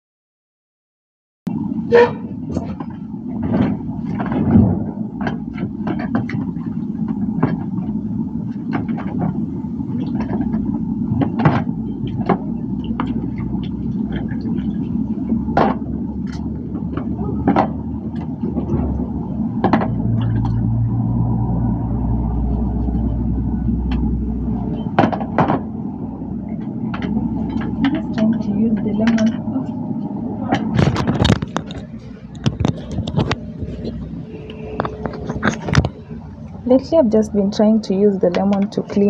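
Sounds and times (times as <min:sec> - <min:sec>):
steady low rumble: 0:01.5 - 0:39.0.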